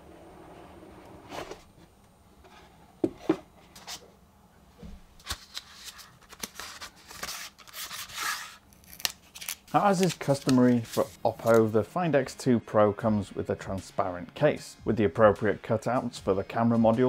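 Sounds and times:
cardboard scraping and rustling: 0.5 - 4.0, 9.4 - 11.7.

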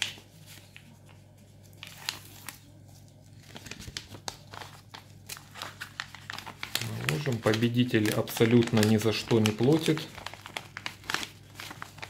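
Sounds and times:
paper envelope crinkling: 0.0 - 12.0.

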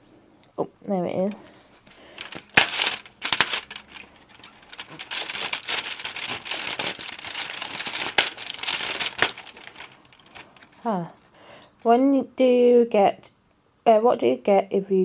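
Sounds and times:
cardboard crinkling and tearing: 2.1 - 10.9.

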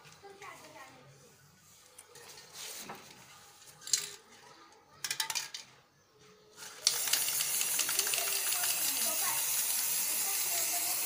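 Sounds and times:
spray can rattling: 6.6 - 11.0
loud spraying hiss: 6.9 - 11.0.

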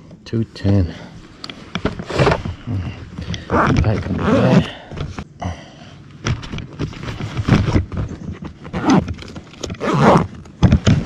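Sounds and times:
knocks and clicks in plastic kayak: 6.2 - 11.0.

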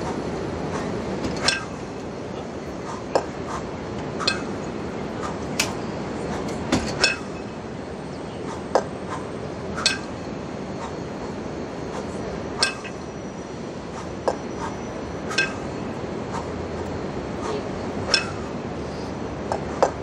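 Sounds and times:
kettlebells clanking: 0.8 - 2.0, 4.1 - 7.6, 8.5 - 11.0, 12.0 - 13.1, 14.1 - 20.0.

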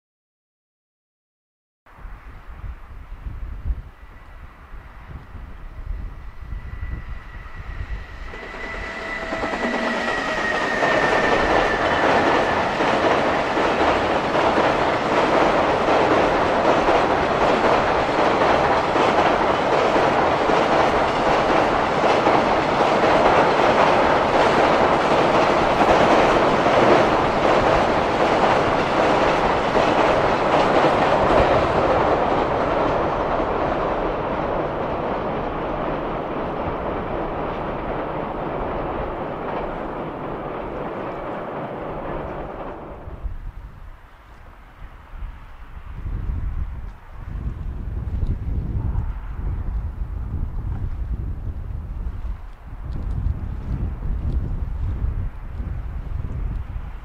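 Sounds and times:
high whine of passing train: 1.9 - 57.0
train wheels clacking over rail joints: 8.3 - 33.8.

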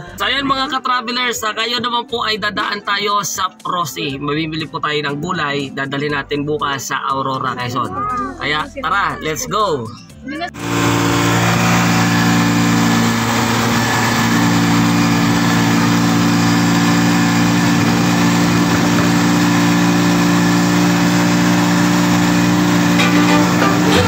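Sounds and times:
three-wheeler engine droning: 10.6 - 24.0.

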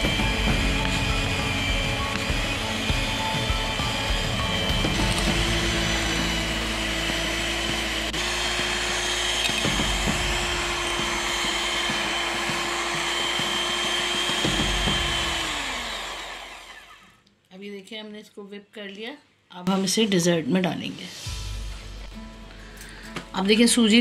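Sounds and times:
electric hand mixer whipping: 0.0 - 17.2.

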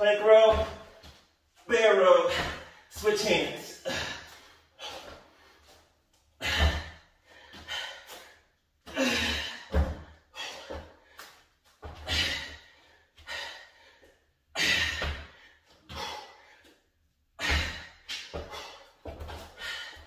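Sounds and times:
man breathing hard: 3.6 - 5.8, 6.4 - 11.4, 12.0 - 16.8, 17.4 - 20.0.

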